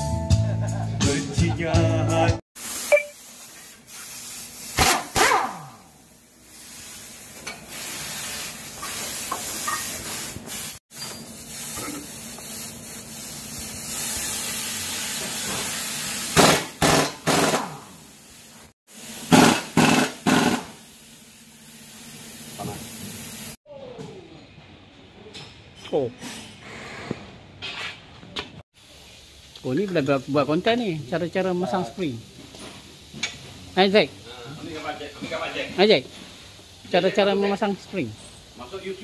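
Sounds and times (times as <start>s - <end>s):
steady hiss: 2.6s - 4.8s, 5.8s - 23.6s, 28.8s - 39.0s
short loud bursts: 4.7s - 5.8s, 16.3s - 17.9s, 19.3s - 20.8s.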